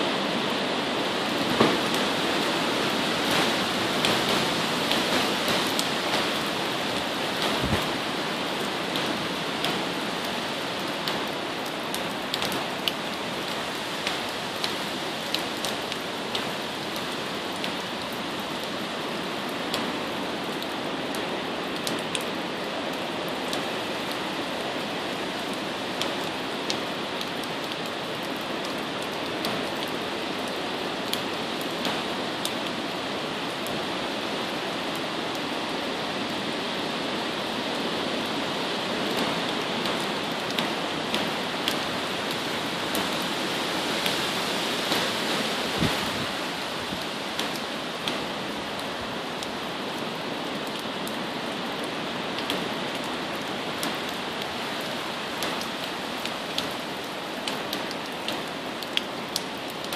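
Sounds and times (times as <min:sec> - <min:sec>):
wind-driven rain through trees: 0:00.0 - 0:59.9
sharp raindrop ticks: 0:03.2 - 0:18.7, 0:25.5 - 0:32.7, 0:39.0 - 0:43.3, 0:47.0 - 0:59.9.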